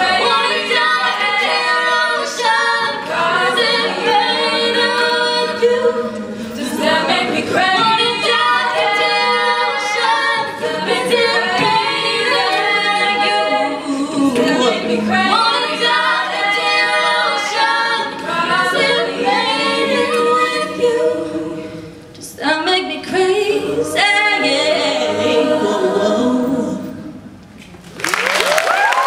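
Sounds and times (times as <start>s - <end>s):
a cappella group singing: 0.0s - 27.4s
audience applause and cheering: 27.9s - 29.0s.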